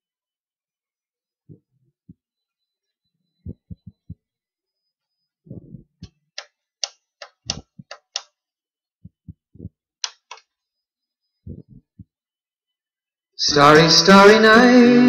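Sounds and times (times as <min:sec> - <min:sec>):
sharp clicks: 0:06.0 - 0:08.4, 0:10.0 - 0:10.5.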